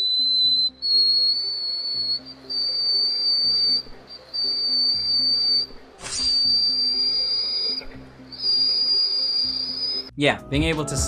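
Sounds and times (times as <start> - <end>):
faint low music: 0.0 - 11.0.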